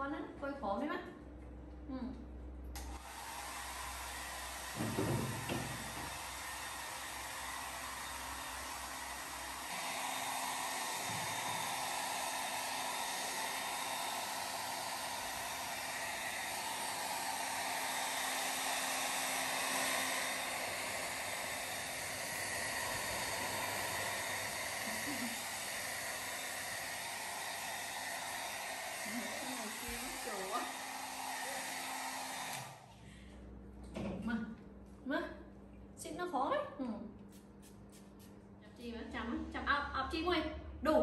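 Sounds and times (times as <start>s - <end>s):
hair dryer blowing: 2.8s - 33.0s.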